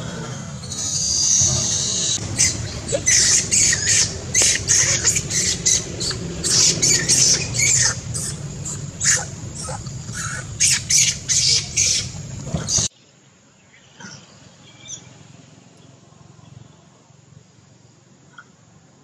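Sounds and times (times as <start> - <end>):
faint animal calls: 0.0 - 12.9
low rumble: 0.0 - 12.9
monkey shrieking: 0.0 - 12.9.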